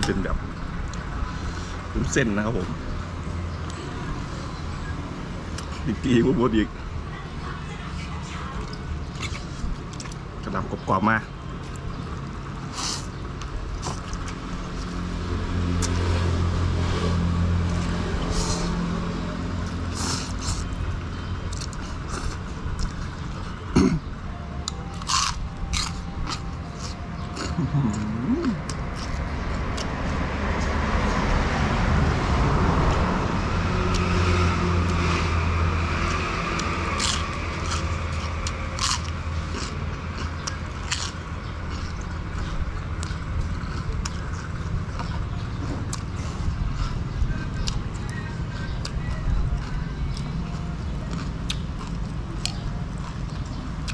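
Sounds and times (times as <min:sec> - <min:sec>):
chewing: 0:08.5 - 0:10.2, 0:11.6 - 0:15.0, 0:19.6 - 0:23.7, 0:24.6 - 0:30.0, 0:35.9 - 0:53.9.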